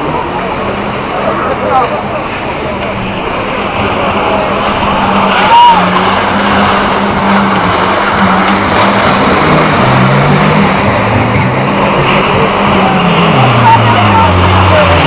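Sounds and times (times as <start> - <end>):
crowd noise: 0.0 - 15.0
racing car engines: 0.0 - 15.0
high squeal: 3.1 - 7.1.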